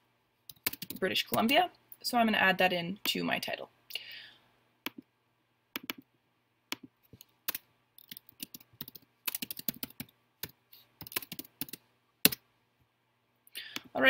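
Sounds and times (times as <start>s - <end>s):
computer keyboard typing: 0.5s - 1.6s, 5.8s - 6.1s, 6.7s - 12.4s.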